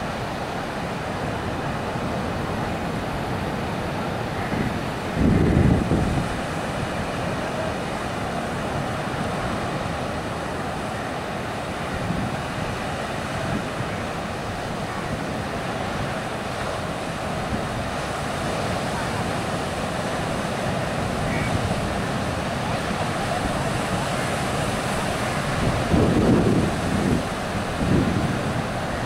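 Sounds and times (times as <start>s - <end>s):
sea surf breaking: 0.0s - 29.0s.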